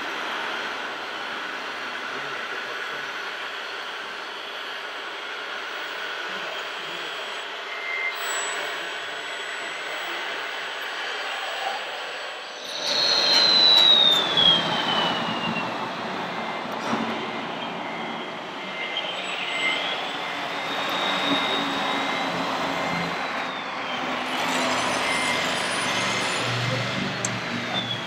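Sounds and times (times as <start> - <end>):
electric motor and gearbox whining: 12.1 - 28.0.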